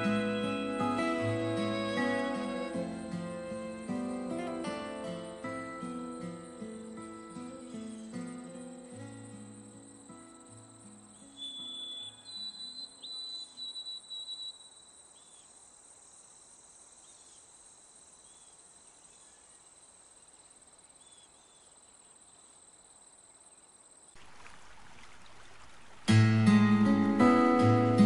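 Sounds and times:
music: 0.0s - 12.3s, 26.1s - 28.0s
acoustic guitar music: 0.0s - 12.8s, 26.1s - 28.0s
soft hiss: 14.3s - 27.2s.

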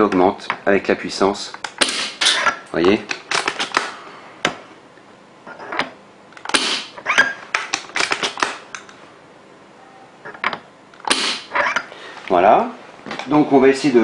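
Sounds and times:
airsoft rifle air puff: 6.5s - 7.0s, 11.1s - 11.6s.

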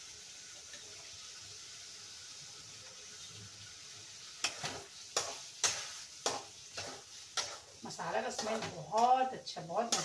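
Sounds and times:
food sizzling in a pan: 0.0s - 10.0s
ladle scraping and knocking pan: 4.4s - 10.0s.

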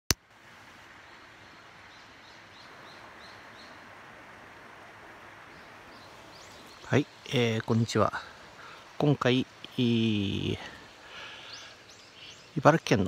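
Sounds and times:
stream running over rocks: 0.1s - 13.0s
bird chirping: 1.0s - 3.9s, 5.4s - 13.0s.

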